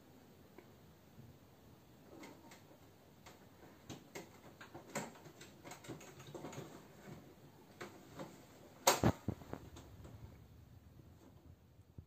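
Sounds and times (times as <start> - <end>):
cat claws clicking on plastic: 3.2 - 6.8.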